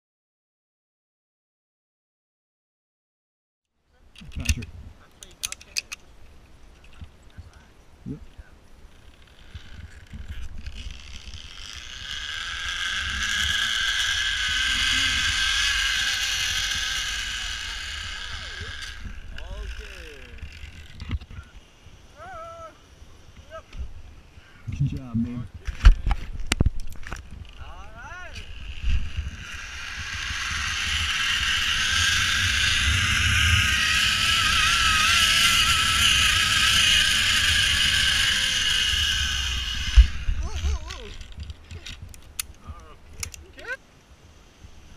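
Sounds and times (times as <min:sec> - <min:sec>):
zipline pulleys whirring on cable: 0:08.9 - 0:22.7, 0:26.8 - 0:42.5
wind rumble on microphone: 0:09.4 - 0:22.0, 0:23.7 - 0:43.3.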